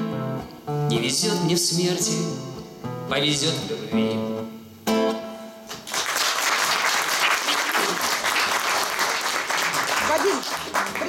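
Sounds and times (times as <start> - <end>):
acoustic guitar strumming chords: 0.0 - 5.8
audience applause: 5.8 - 11.0.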